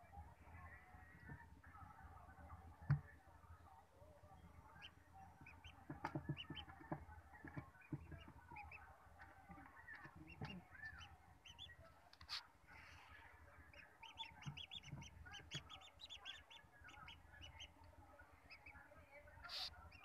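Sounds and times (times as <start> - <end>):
ducklings peeping: 4.4 - 20.0.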